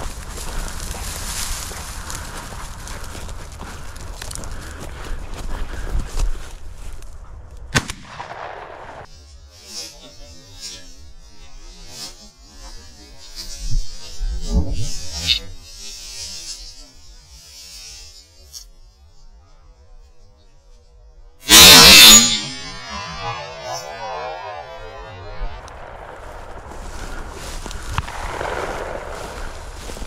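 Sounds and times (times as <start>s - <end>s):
footsteps through dry grass: 0.0s - 8.6s, 21.6s - 30.0s.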